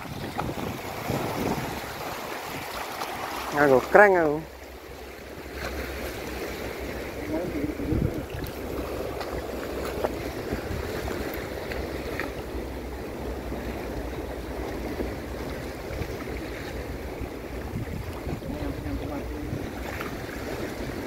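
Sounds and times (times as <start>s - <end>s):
wind noise on microphone: 0.0s - 2.8s, 7.2s - 12.0s, 14.8s - 21.0s
small waves against rocks: 0.0s - 21.0s.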